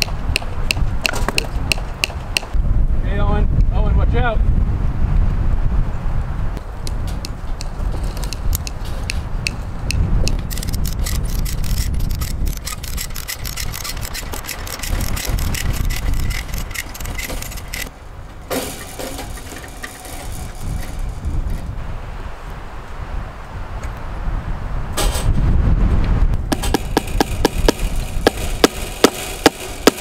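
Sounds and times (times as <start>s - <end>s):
wind buffeting microphone: 0.0s - 30.0s
ratchet clicking: 10.5s - 17.9s.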